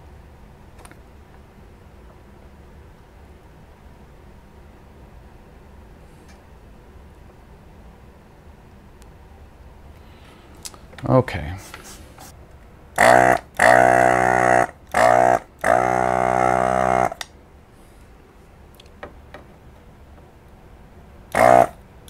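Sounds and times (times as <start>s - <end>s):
vacuum pump buzzing: 13.0s - 17.3s, 21.3s - 21.8s.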